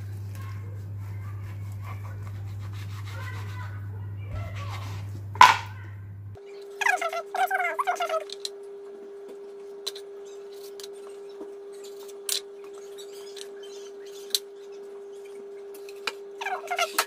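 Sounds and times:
steady hum: 0.0 - 17.0
knife tapping cutting board: 5.4 - 5.7.

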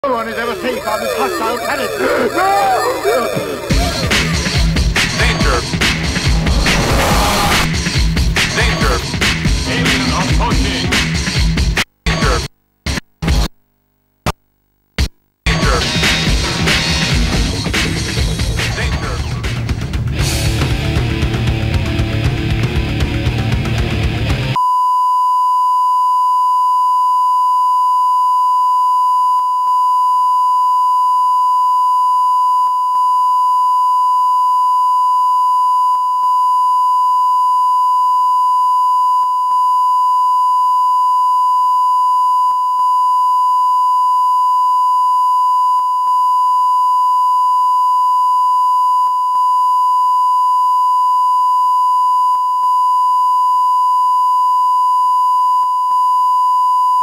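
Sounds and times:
heavy rock music: 3.4 - 11.6, 15.5 - 24.6.

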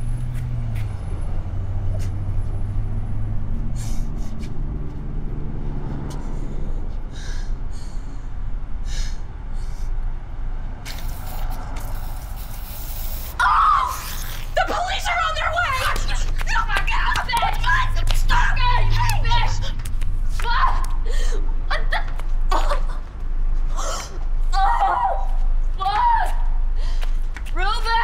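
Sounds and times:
low engine hum: 0.0 - 28.0
woman screaming: 13.4 - 19.7, 24.5 - 26.4
woman crying: 21.0 - 23.1.

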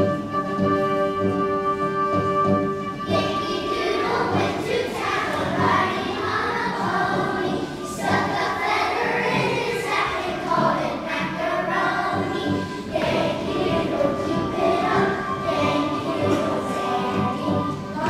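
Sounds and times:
children's choir singing: 0.0 - 18.0
instrumental accompaniment: 0.0 - 18.0.

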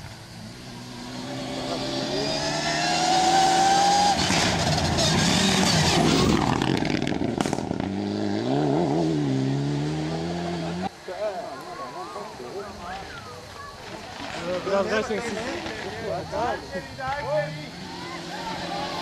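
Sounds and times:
rally car engine: 0.0 - 10.9, 15.3 - 19.0
gravel clicking under tyres: 4.1 - 8.0, 12.6 - 17.5.

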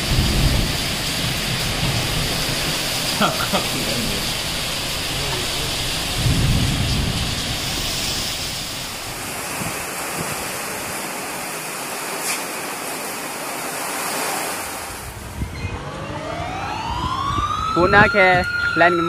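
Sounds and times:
deep rumble: 0.0 - 9.8
heavy rain pouring: 0.0 - 19.0
strong wind: 0.0 - 19.0.

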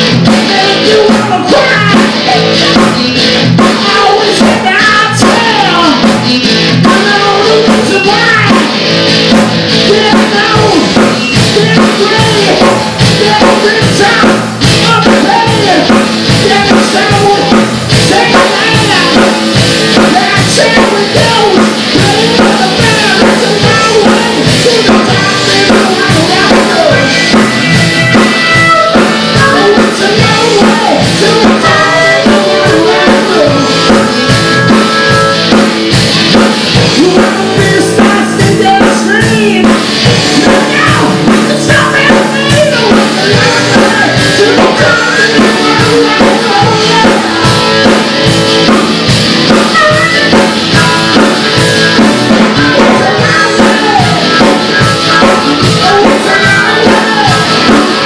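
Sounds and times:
drum kit: 0.0 - 58.0
woman singing into a microphone: 0.3 - 3.0, 3.7 - 6.0, 6.8 - 8.7, 9.9 - 27.3, 28.6 - 34.1, 36.9 - 48.0, 49.5 - 58.0.

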